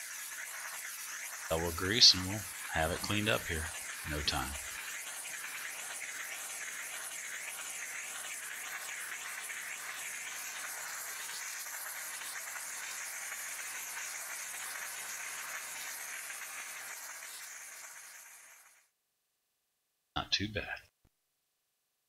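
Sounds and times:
steam cleaner hissing: 0.0s - 18.7s
faint machine hum: 1.3s - 7.9s.

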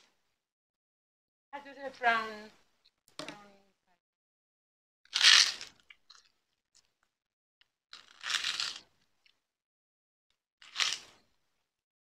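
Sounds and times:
prawn cracker crunching: 5.1s - 6.2s, 7.9s - 8.8s, 10.6s - 11.2s.

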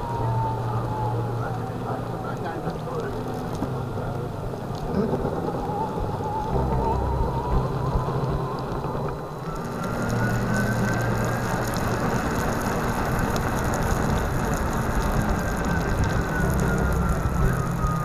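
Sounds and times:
thin motor whine: 0.0s - 18.0s
tyre hiss on wet pavement: 9.5s - 18.0s.

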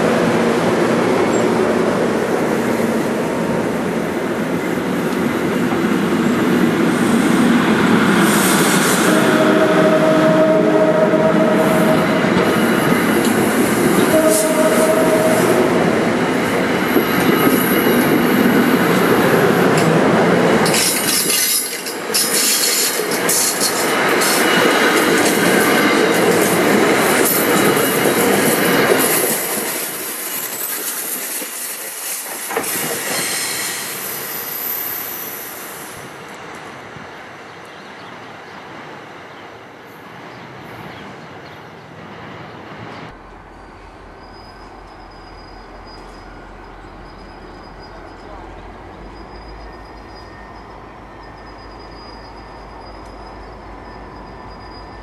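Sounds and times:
train wheels squealing: 11.3s - 19.4s, 20.6s - 26.4s, 27.1s - 36.1s, 43.6s - 55.0s
train wheels clattering over rails: 16.1s - 33.9s.

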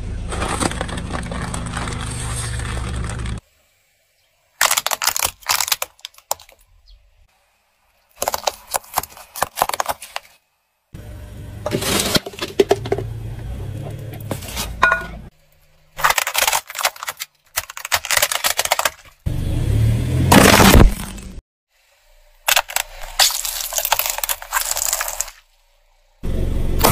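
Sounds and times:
car tyre crushing plastic: 0.1s - 3.4s, 4.6s - 6.7s, 8.2s - 10.4s, 11.6s - 13.2s, 15.9s - 19.3s, 20.3s - 21.4s, 22.4s - 25.5s.

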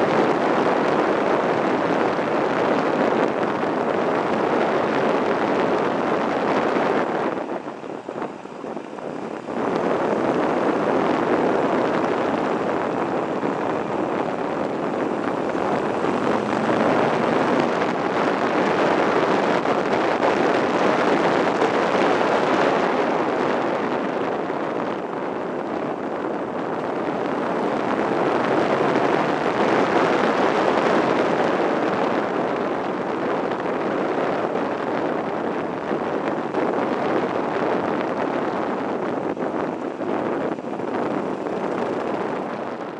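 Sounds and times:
wind rushing over microphone: 0.0s - 42.9s
motorcycle engine running: 9.6s - 20.9s.

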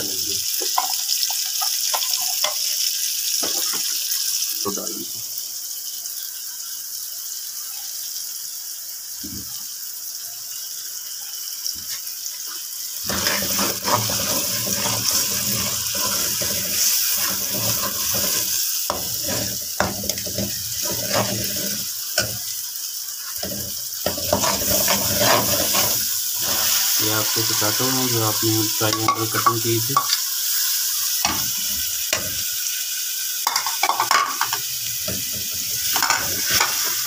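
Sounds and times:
sauce sizzling in hot oil: 0.0s - 37.0s
ladle scraping metal pot: 13.1s - 22.3s, 23.4s - 26.8s.

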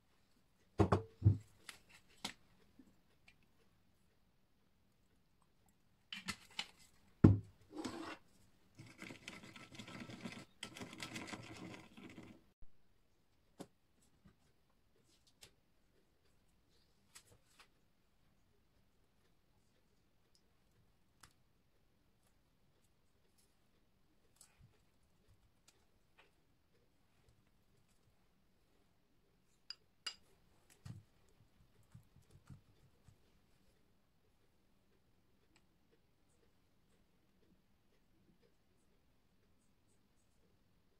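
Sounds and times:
spatula scraping ceramic bowl: 7.7s - 12.3s.

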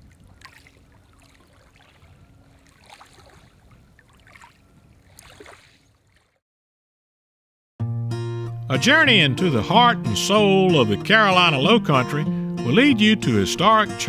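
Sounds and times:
water lapping and splashing: 0.0s - 6.4s.

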